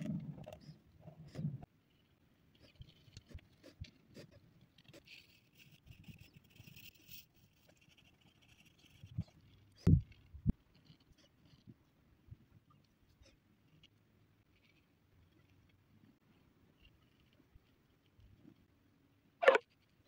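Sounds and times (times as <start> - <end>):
pen strokes and ticks: 0.4 - 11.8, 12.8 - 18.7
pencil scratching on paper: 2.6 - 9.9.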